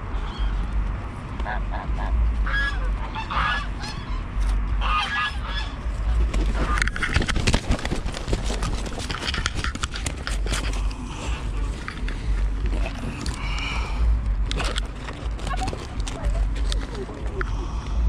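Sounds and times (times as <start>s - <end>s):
goose honking: 1.4s - 7.0s
wings flapping and scuffling: 4.6s - 17.4s
microphone handling rumble: 5.8s - 18.0s.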